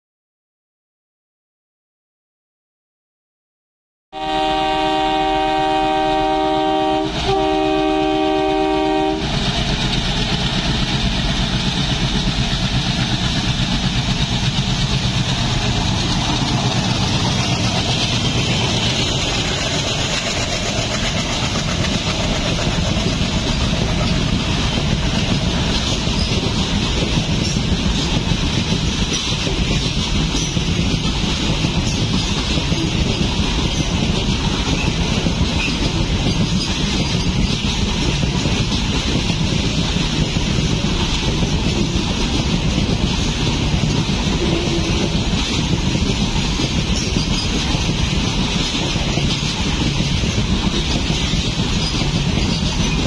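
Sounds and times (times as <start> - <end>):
locomotive horn chord: 4.2 - 9.3
locomotive engines rumbling: 4.3 - 53.0
wheels clattering on rails: 7.0 - 53.0.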